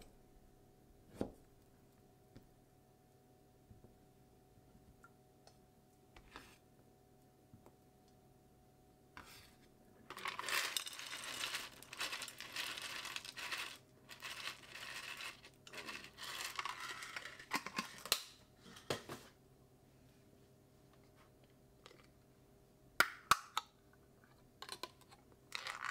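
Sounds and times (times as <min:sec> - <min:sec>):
corn kernels rustling into a dish: 0:10.1 - 0:18.1.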